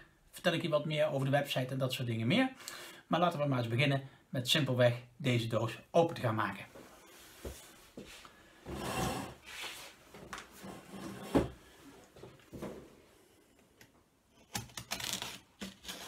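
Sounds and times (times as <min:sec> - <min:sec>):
rustling and shuffling: 0:06.6 - 0:13.6.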